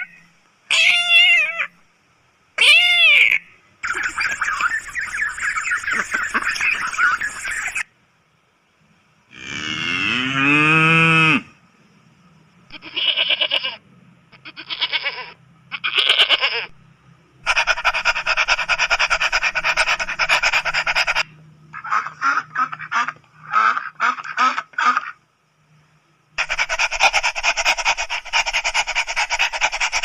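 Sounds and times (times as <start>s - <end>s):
rapidly pulsing animal call: 0.0s - 1.7s, 2.6s - 7.8s, 14.4s - 16.7s, 17.4s - 25.2s, 26.4s - 30.0s
cow mooing: 9.3s - 11.5s
goat bleating: 12.7s - 13.8s, 14.4s - 16.7s.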